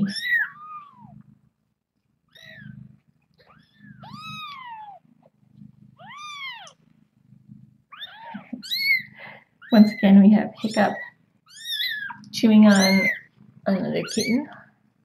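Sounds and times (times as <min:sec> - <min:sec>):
kittens mewing: 0:00.0 - 0:01.2, 0:02.3 - 0:05.0, 0:06.0 - 0:06.8, 0:07.9 - 0:13.4, 0:14.0 - 0:14.6.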